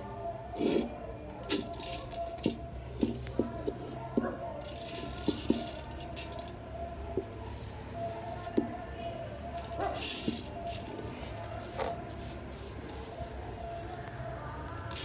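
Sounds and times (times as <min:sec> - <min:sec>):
seeds rattling: 0:00.6 - 0:03.2, 0:04.6 - 0:06.7, 0:09.5 - 0:13.2, 0:14.8 - 0:15.0.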